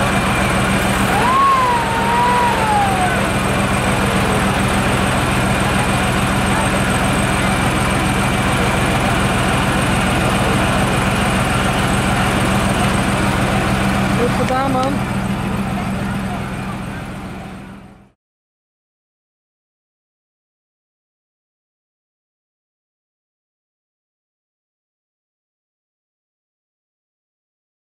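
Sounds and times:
street noise: 0.0 - 18.2
vehicle engine idling: 0.0 - 18.2.

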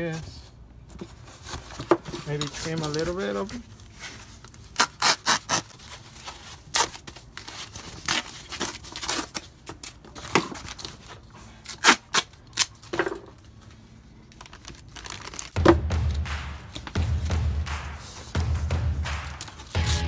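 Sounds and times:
plastic tearing and crinkling: 1.4 - 13.4, 14.2 - 15.6
loud thump: 15.6 - 20.0.

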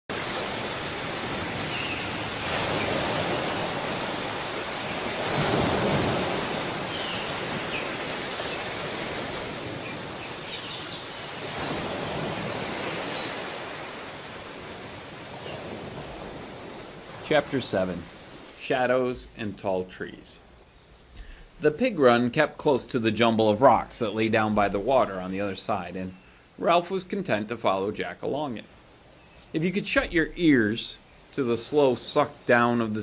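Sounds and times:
ocean waves washing onto beach: 0.1 - 20.3.

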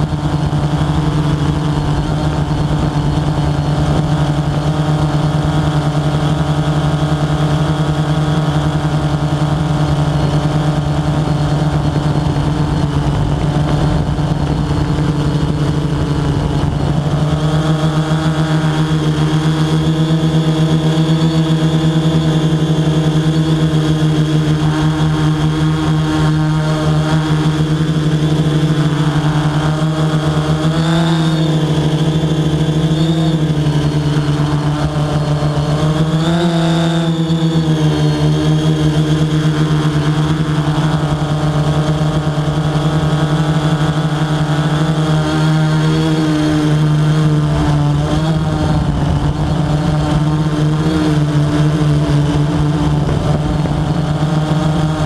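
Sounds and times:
drone propeller motors humming: 0.0 - 55.0.

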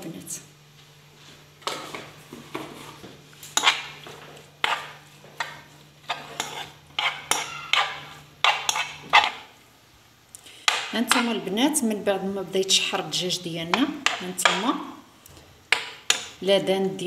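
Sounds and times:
steady low hum: 0.0 - 17.0
utensil scraping a frying pan: 1.6 - 9.5.

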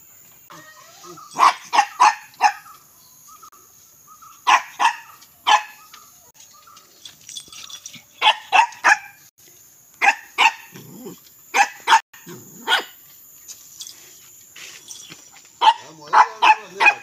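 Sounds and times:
small dog yapping: 4.5 - 6.0, 10.0 - 13.0.

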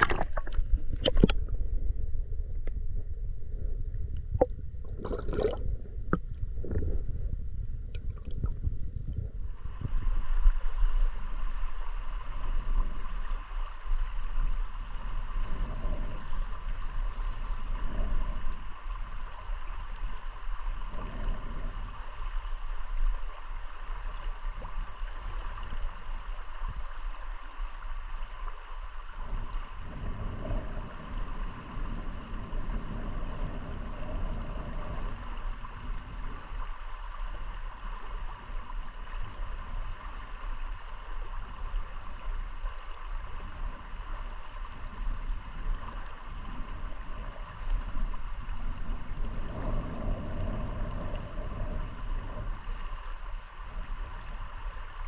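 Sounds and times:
river water flowing over rocks: 4.9 - 5.6.

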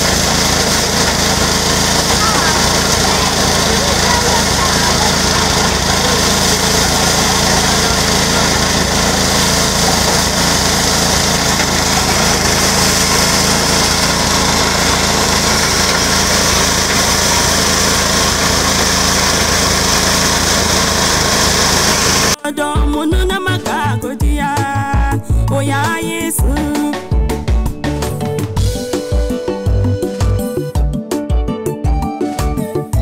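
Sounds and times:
grain threshing hiss and rattle: 0.0 - 22.4
small petrol engine running: 0.0 - 22.4.

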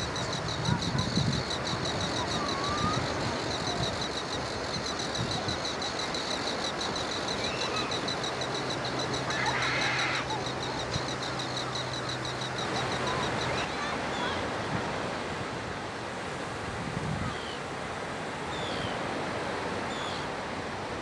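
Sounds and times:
high-pitched pulsing: 0.0 - 13.7
distant bird calls: 0.0 - 14.2
surf: 0.0 - 21.0
wind: 0.0 - 21.0.

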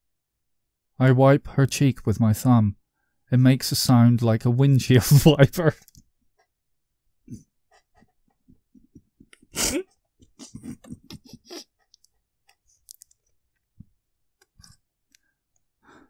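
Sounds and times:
mouth clicks and lip smacks: 11.8 - 13.7.

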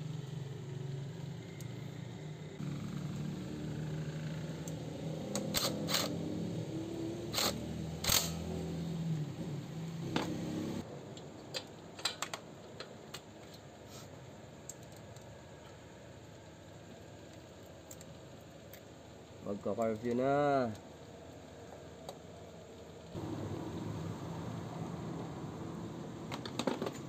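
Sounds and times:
steady engine-like hum: 0.0 - 10.9, 22.9 - 27.0
metallic clicks of hand tools: 7.3 - 8.4.

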